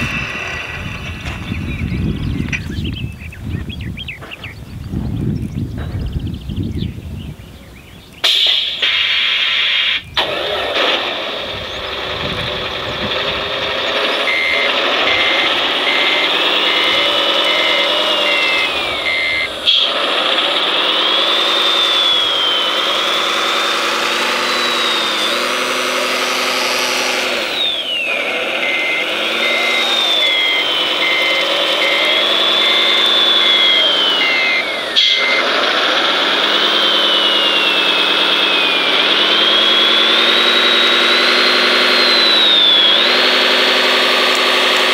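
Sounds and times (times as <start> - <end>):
simulated diesel engine revving: 0.0 - 2.4, 8.9 - 44.9
high whine: 0.0 - 4.3, 8.2 - 44.9
reversing beeps: 14.1 - 19.8, 27.3 - 35.6.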